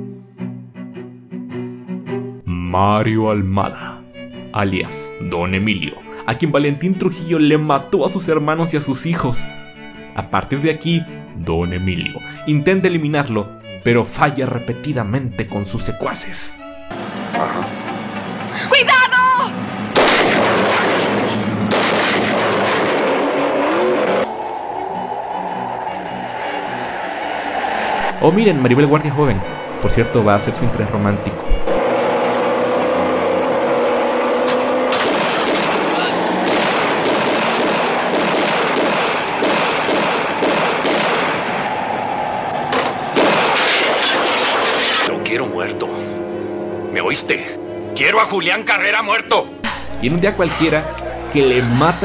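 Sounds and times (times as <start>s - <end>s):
background music: 0.0s - 22.8s, 23.4s - 52.0s
action sound effects: 42.7s - 52.0s.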